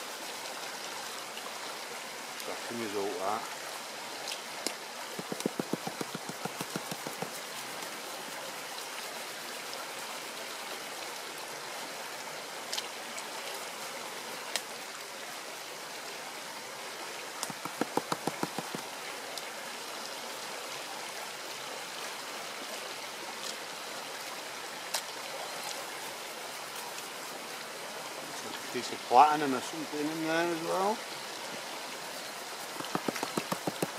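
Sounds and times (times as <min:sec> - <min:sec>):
stream water trickling: 0:00.0 - 0:33.9.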